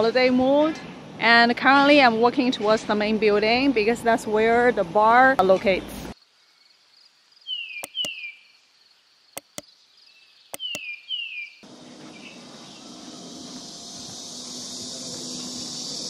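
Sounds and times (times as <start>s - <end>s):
cicadas buzzing: 6.2s - 16.0s
mouse clicks: 7.8s - 8.2s, 9.4s - 9.6s, 10.6s - 10.8s
short falling chirps: 7.8s - 8.2s, 10.6s - 10.8s.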